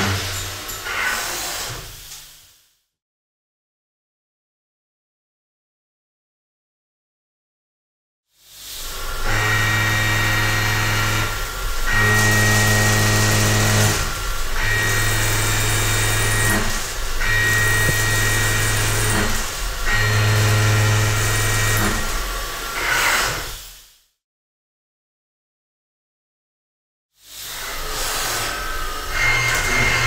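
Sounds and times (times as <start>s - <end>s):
milling cutter cutting steel: 9.1s - 23.5s.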